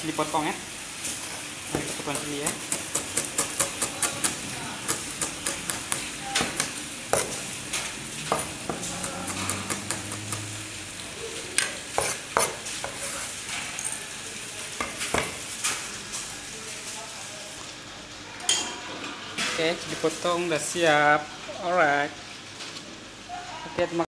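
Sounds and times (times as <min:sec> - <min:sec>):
cleaver chopping on wooden board: 0:02.5 - 0:07.4, 0:08.3 - 0:10.5, 0:12.0 - 0:13.0.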